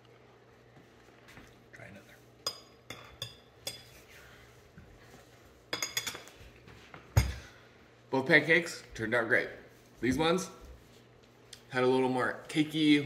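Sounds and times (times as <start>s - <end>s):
fork clinking on ceramic plate: 2.4s - 4.0s, 5.7s - 6.3s.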